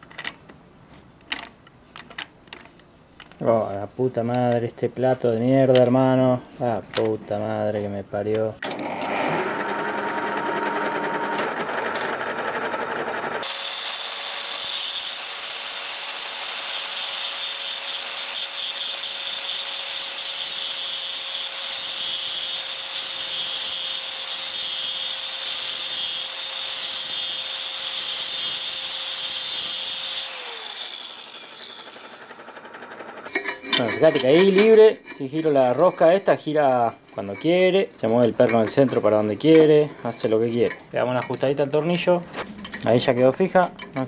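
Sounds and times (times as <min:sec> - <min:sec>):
grinder grinding steel screw: 0:13.2 - 0:41.4.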